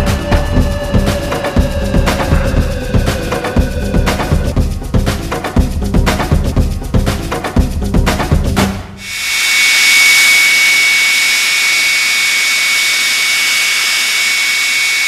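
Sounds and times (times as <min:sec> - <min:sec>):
jet engine idling whine: 0:09.0 - 0:15.0.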